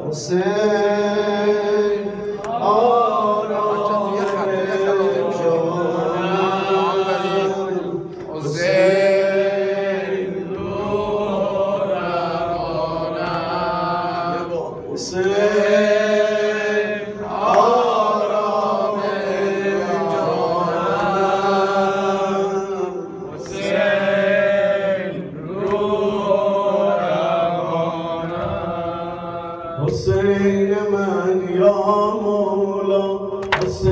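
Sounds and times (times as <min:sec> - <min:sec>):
man chanting a lament: 0:00.0 - 0:24.4, 0:28.9 - 0:33.9.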